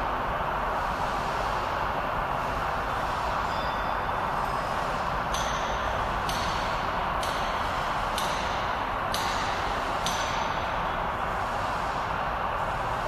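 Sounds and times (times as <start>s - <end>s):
mechanical hum: 0.0s - 13.0s
high-pitched metallic tick: 5.3s - 10.7s.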